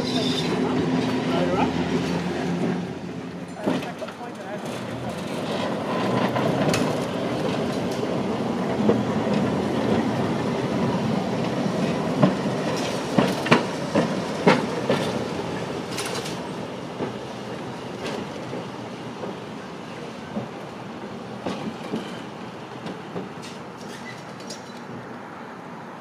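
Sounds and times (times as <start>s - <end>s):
tram wheels rumbling on rails: 0.0s - 25.2s
wheels clacking over track: 3.5s - 20.6s.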